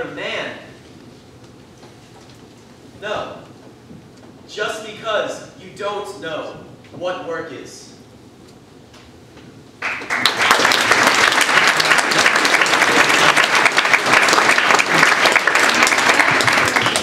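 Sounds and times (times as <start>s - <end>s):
audience applause: 9.8s - 17.0s.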